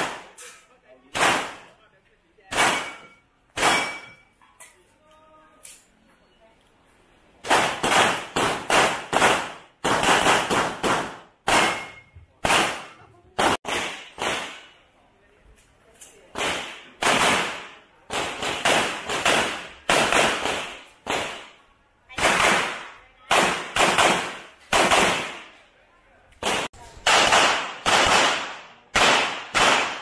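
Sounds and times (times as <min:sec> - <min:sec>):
handgun shots: 0:02.5 - 0:04.2, 0:07.4 - 0:14.7, 0:26.4 - 0:30.0.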